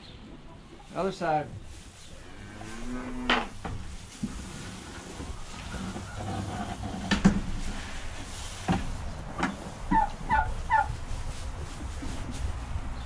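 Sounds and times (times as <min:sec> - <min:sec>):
turkey gobbling: 0:09.9 - 0:10.9.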